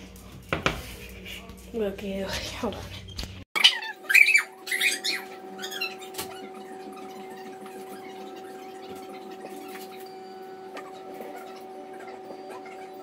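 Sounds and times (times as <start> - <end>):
electrical hum: 0.0 - 13.0
high-pitched squeaks: 3.6 - 13.0.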